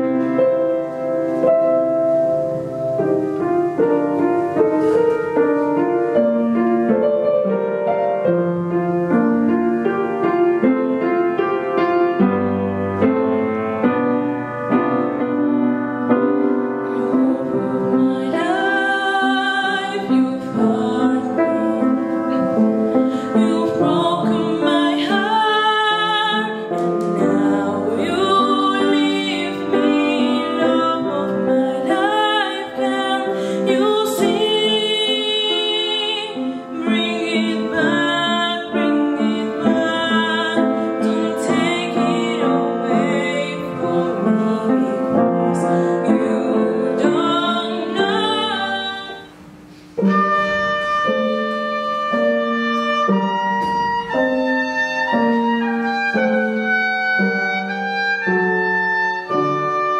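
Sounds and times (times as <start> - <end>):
piano playing: 0.0 - 59.9
girl singing with vibrato: 16.9 - 59.9.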